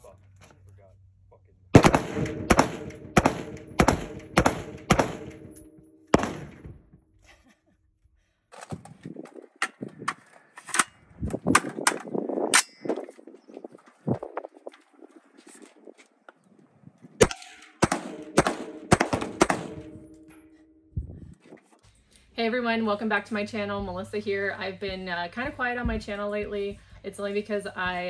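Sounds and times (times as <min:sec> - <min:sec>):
rifle shots: 0:01.8 - 0:06.8, 0:17.2 - 0:20.2.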